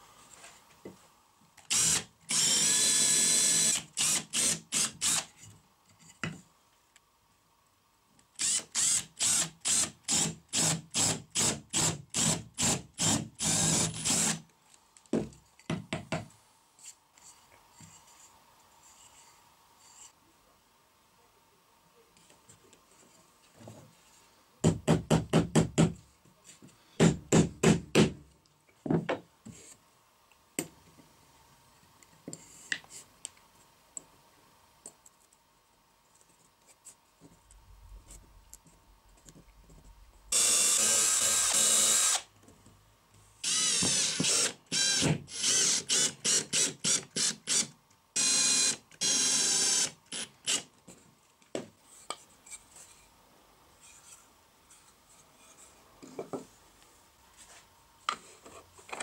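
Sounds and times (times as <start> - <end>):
cordless drill bursts: 1.7 - 5.3, 8.4 - 14.4, 40.3 - 42.3, 43.4 - 50.6.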